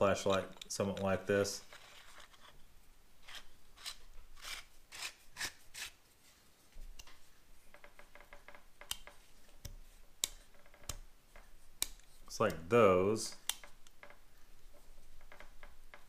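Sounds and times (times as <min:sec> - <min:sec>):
metal scraping on threads: 0:00.1 - 0:02.6.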